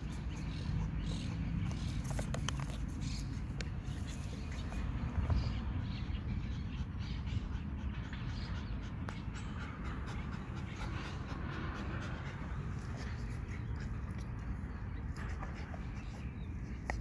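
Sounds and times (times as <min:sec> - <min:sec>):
light clicks and rustles: 0:01.6 - 0:04.8
steady low rumble: 0:03.0 - 0:17.0
small dog panting: 0:06.1 - 0:17.0.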